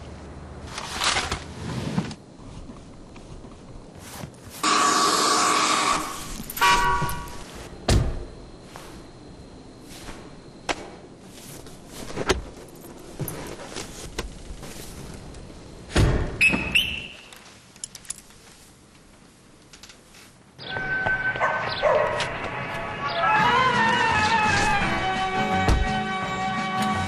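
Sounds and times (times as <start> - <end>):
sharp knocks and thuds: 15.9 - 16.7, 25.7 - 26.0.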